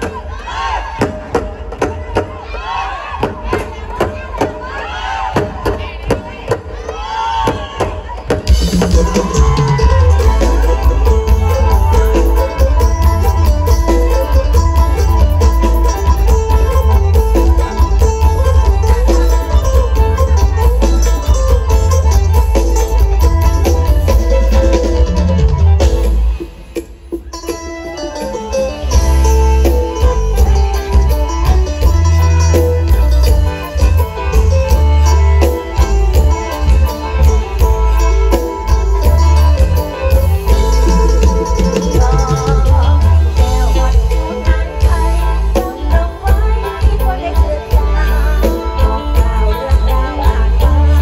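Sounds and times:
fast driving drums: 0.0 - 51.0
live folk music over pa: 0.0 - 51.0
fast drum strokes: 7.5 - 27.4
heavy bass: 8.5 - 27.1, 28.9 - 51.0.

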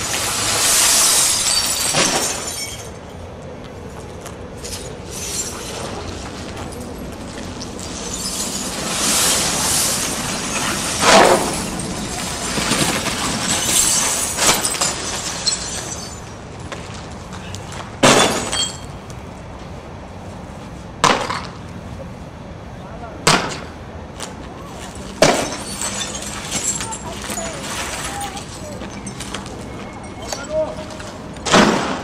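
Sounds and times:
shattered glass crackling and crunching: 0.0 - 3.0, 4.6 - 17.0, 25.2 - 31.2.

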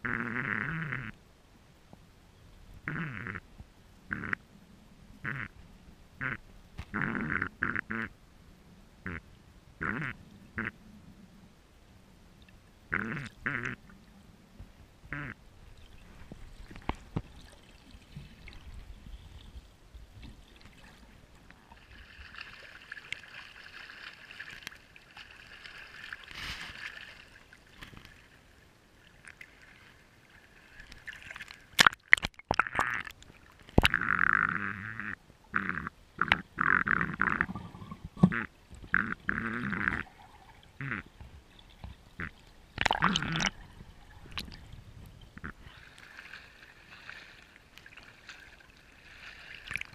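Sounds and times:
water sloshing and splashing: 15.7 - 34.0, 37.1 - 39.2, 39.8 - 49.9.

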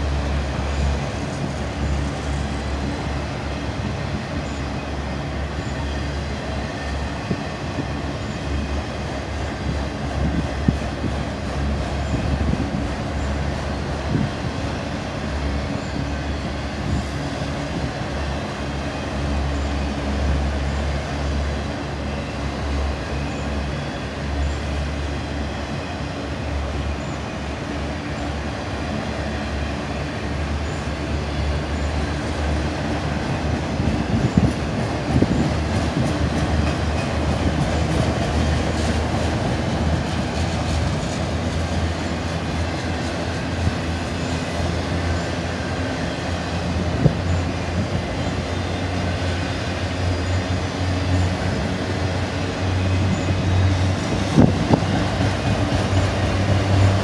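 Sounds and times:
freight train wheels rumbling: 0.0 - 57.0
train knocks and clanks: 0.0 - 57.0.

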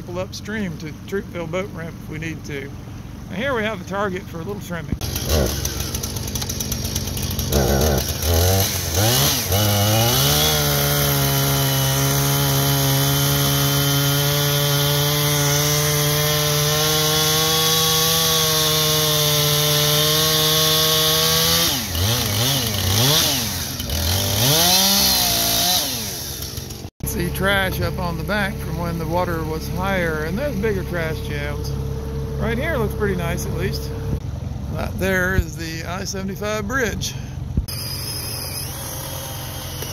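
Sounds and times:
chainsaw revving and cutting log: 5.0 - 34.2, 37.6 - 39.9.

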